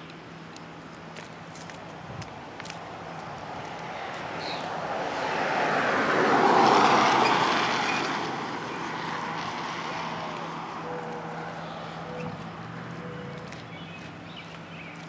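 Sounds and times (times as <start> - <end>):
vehicle driving past: 3.4 - 14.8.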